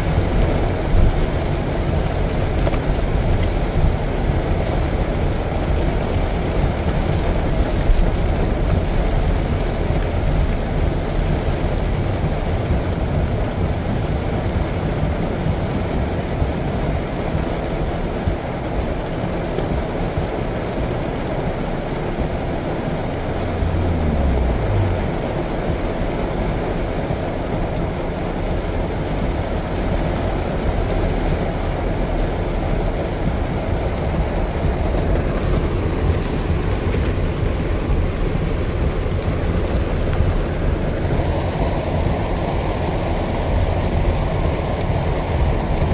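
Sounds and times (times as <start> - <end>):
rain hiss: 0.0 - 45.9
traffic rumble: 0.0 - 45.9
engine revving: 23.4 - 25.5.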